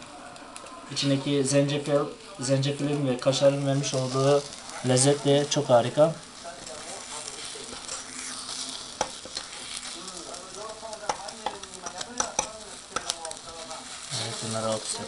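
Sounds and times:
batter sizzling in a pan: 0.0s - 15.0s
skewers clicking on pan: 1.9s - 15.0s
metal skewers scraping: 3.2s - 5.8s, 6.7s - 10.1s.

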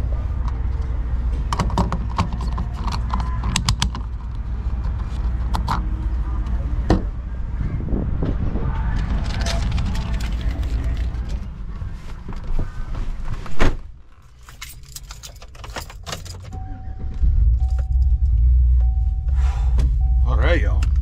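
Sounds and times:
keys clicking: 9.3s - 11.4s, 14.1s - 16.7s
seatbelt buckling: 14.1s - 16.6s
truck engine starting and idling: 14.2s - 21.0s
warning chime beeping: 16.5s - 21.0s.

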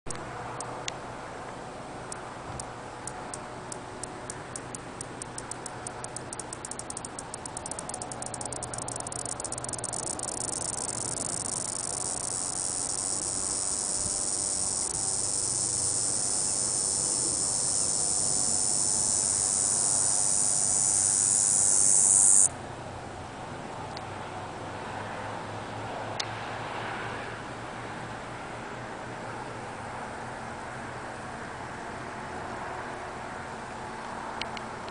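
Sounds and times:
cicada ticking and buzzing: 0.1s - 0.8s, 2.1s - 22.5s.

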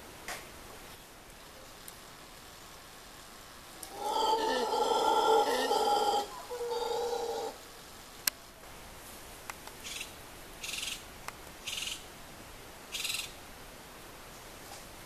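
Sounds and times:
howler monkey call: 3.9s - 7.6s.

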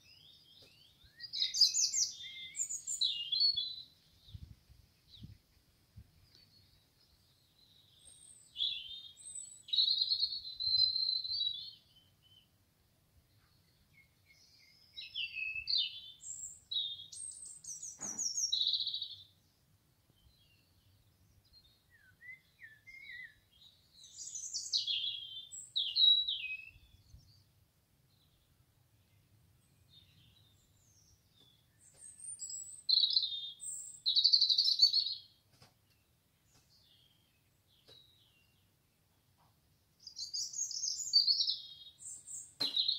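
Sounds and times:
bird singing trills and whistles: 0.0s - 4.5s, 7.6s - 12.5s, 13.9s - 19.3s, 21.5s - 27.4s, 29.9s - 35.4s, 40.0s - 42.9s.

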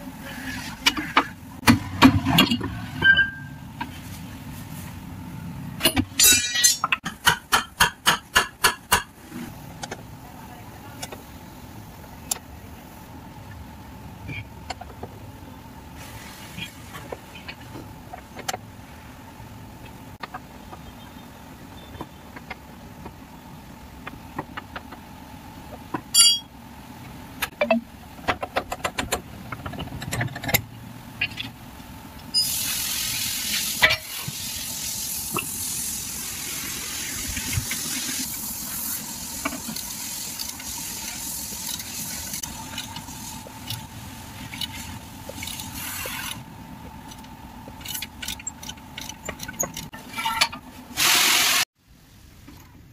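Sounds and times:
spanner clinking on bolts: 26.1s - 26.5s.

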